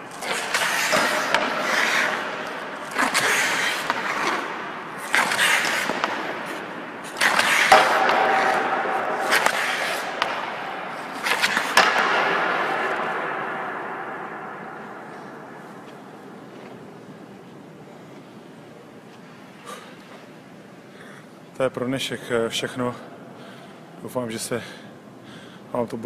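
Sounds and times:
skate blades scraping ice: 0:00.0 - 0:13.6
hockey stick striking puck: 0:00.0 - 0:17.0.

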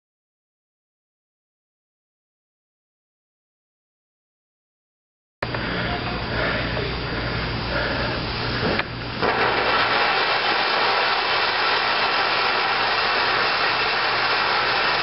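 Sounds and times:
firework sparks hissing: 0:06.9 - 0:15.0.

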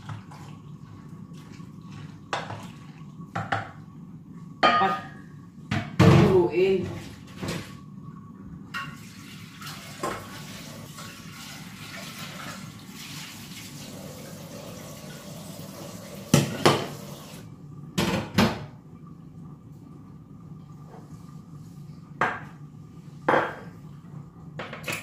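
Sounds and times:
pots and dishes clattering: 0:02.3 - 0:03.8, 0:04.6 - 0:05.2, 0:08.7 - 0:10.4
water running into sink: 0:08.7 - 0:18.8.

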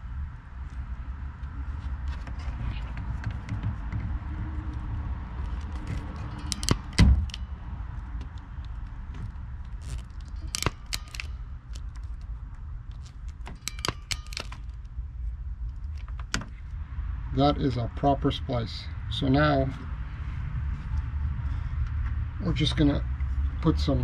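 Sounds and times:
crimping pliers clicking and snapping: 0:09.8 - 0:12.2, 0:12.9 - 0:14.8.

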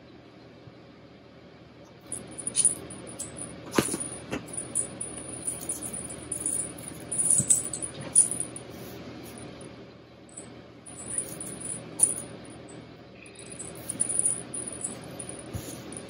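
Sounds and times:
small bells jingling: 0:02.1 - 0:08.6, 0:10.4 - 0:16.0.

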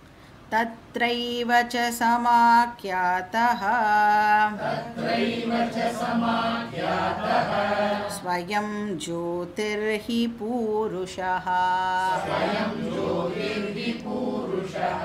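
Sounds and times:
woman chanting melodically: 0:00.5 - 0:15.0.

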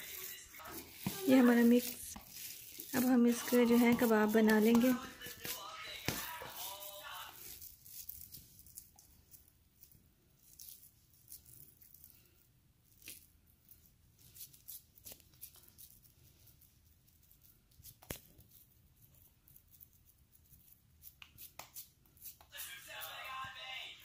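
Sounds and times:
hands squishing and patting meat: 0:00.0 - 0:09.0.

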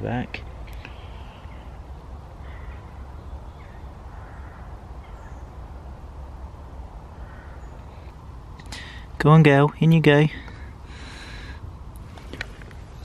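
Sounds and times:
low steady rumble: 0:00.0 - 0:13.0
faint bird calls: 0:00.4 - 0:09.1.

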